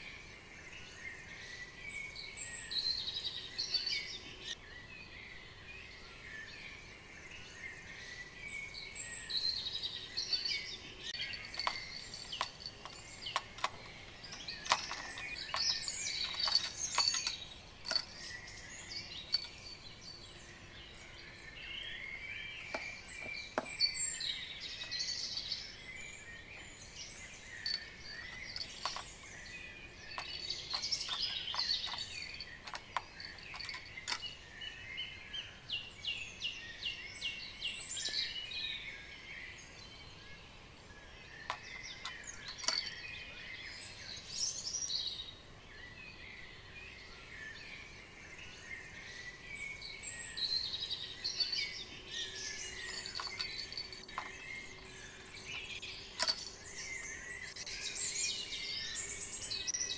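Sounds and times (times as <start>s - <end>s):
outdoor background noise: 0.0s - 59.9s
songbirds chirping and singing: 0.0s - 59.9s
bird trill: 8.2s - 35.4s, 41.3s - 45.2s, 49.1s - 59.9s.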